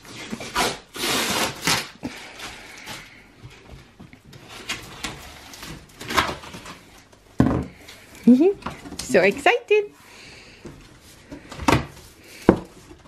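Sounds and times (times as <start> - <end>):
packing tape being slit and torn: 0.1 - 3.1, 4.4 - 6.8.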